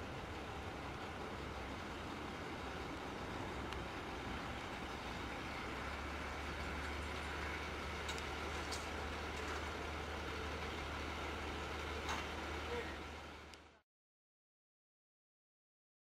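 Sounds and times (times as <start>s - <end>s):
diesel engine running: 0.0s - 13.8s.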